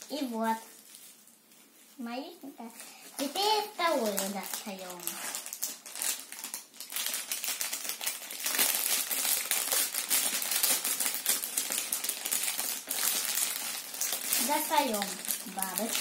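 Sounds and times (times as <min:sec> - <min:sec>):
plastic bags crinkling: 0:00.0 - 0:02.0, 0:02.8 - 0:16.0.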